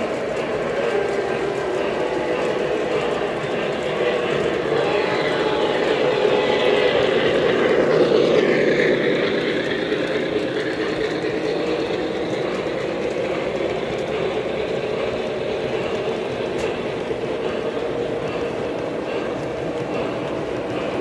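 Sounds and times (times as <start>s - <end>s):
model train wheels rumbling: 0.0s - 21.0s.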